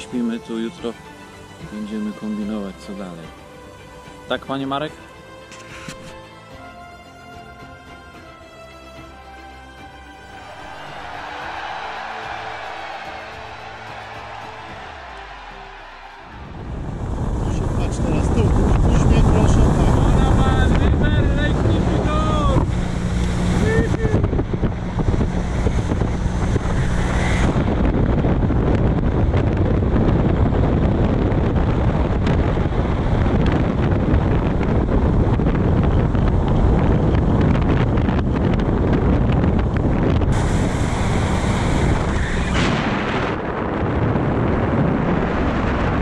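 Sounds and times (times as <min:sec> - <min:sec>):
wind buffeting microphone: 0:10.6 - 0:46.0.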